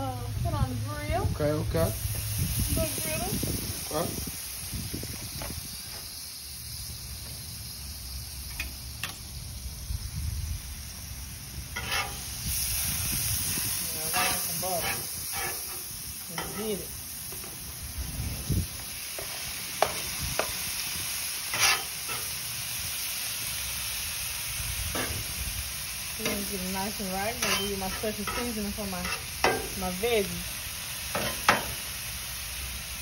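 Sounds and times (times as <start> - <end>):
meat and vegetables sizzling on griddle: 0.0 - 33.0
spatula scraping steel cooktop: 11.8 - 12.3, 14.0 - 16.8, 21.5 - 22.3, 27.3 - 29.8.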